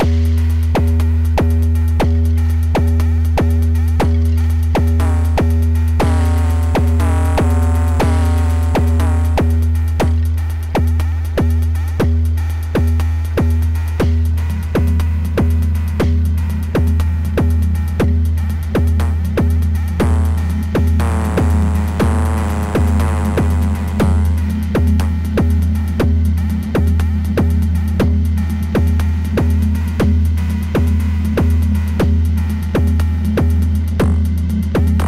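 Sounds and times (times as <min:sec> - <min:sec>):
sustained low bass tone: 0:00.0 - 0:35.0
sharp electronic drum hits: 0:20.0 - 0:24.5.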